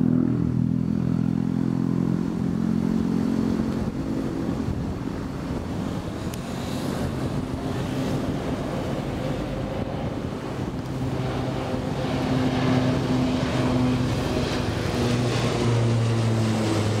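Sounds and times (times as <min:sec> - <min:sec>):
propeller airliner drone: 0:00.0 - 0:17.0.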